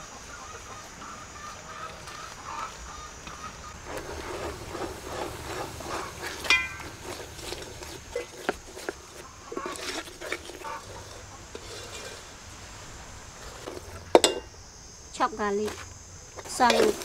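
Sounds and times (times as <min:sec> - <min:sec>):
metal ladle scraping pot: 0:03.2 - 0:12.6, 0:13.3 - 0:14.5, 0:16.4 - 0:17.0
melted sugar bubbling: 0:03.7 - 0:14.5.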